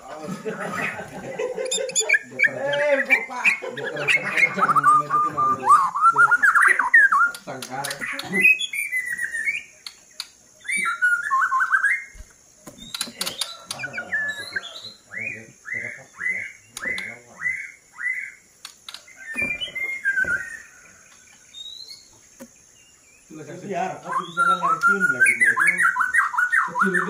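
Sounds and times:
bird singing whistled phrases: 0:04.1 - 0:09.7, 0:10.6 - 0:12.2, 0:19.2 - 0:20.8, 0:21.5 - 0:22.1, 0:24.0 - 0:27.0
sharp clicks: 0:07.2 - 0:08.4, 0:09.8 - 0:10.4, 0:12.2 - 0:13.8, 0:18.6 - 0:19.1.

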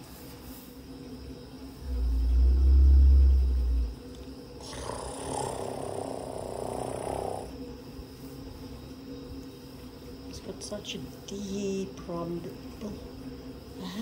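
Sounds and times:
elephant deep rumble: 0:01.7 - 0:07.7
elephant soft hissing: 0:04.6 - 0:08.4.

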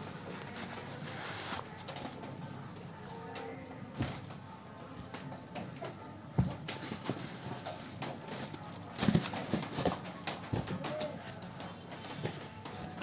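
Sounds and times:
shoes knocking and thumping: 0:09.0 - 0:11.1.

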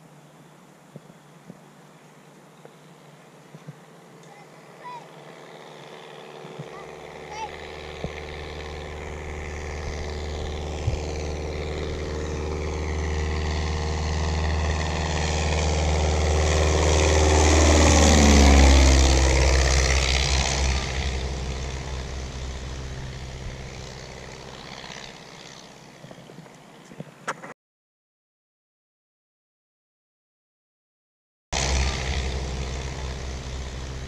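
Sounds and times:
light plane flying past: 0:03.3 - 0:26.8, 0:31.6 - 0:34.0.

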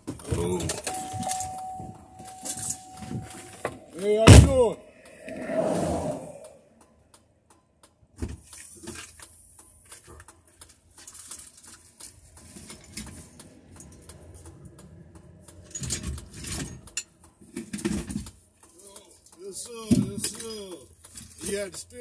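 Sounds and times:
light clicks and rattles: 0:07.8 - 0:22.0.

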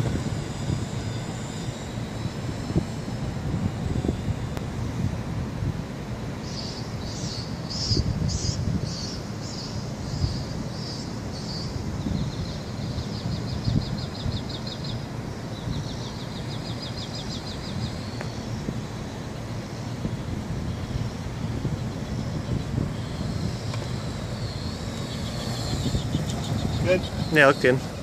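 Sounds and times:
wind buffeting microphone: 0:00.0 - 0:10.8, 0:11.5 - 0:28.0
small bird chirping and trilling: 0:06.4 - 0:18.5, 0:21.7 - 0:28.0.

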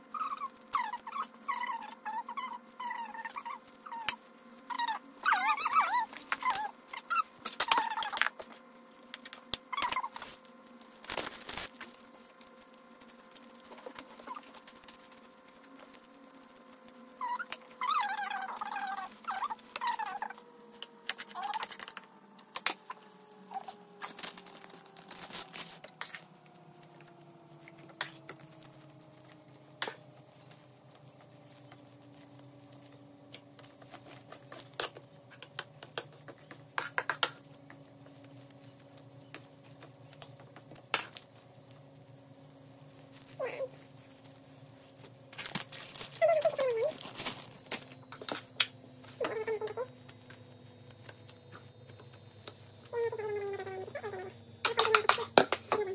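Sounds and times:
faint machine hum: 0:00.0 - 0:55.9
hands handling nori sheets: 0:42.9 - 0:52.9.

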